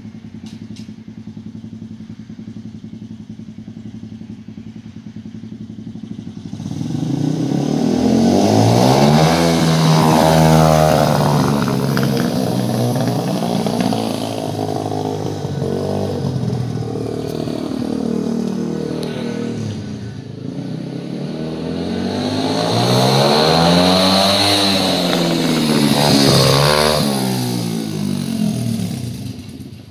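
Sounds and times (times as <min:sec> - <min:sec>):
pit bike engine revving: 0:05.5 - 0:29.9.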